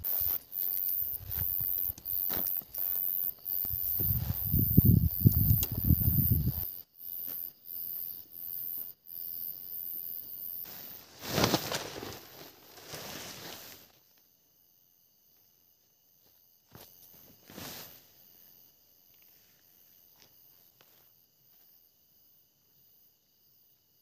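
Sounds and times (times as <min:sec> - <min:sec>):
rustling on forest floor: 0:00.0 - 0:06.6, 0:10.6 - 0:14.2, 0:16.7 - 0:18.2
insects chirring: 0:00.0 - 0:24.0.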